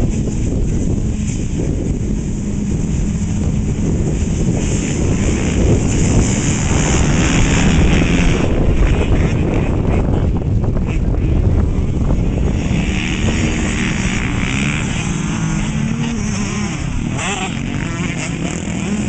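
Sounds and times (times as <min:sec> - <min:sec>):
dirt bikes revving: 0:00.0 - 0:19.0
wind buffeting microphone: 0:00.0 - 0:19.0.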